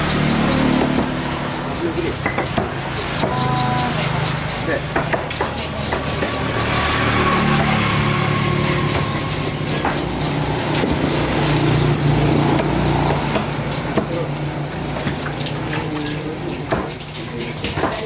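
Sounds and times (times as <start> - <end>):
cleaver knocking on wooden block: 0.0 - 6.8, 12.4 - 14.2.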